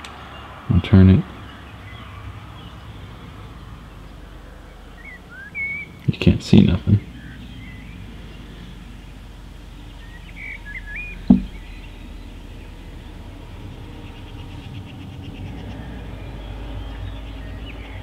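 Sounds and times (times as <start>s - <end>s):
birds chirping: 0.0s - 18.0s
low rumble: 1.4s - 18.0s
camera handling knock: 11.3s - 11.6s.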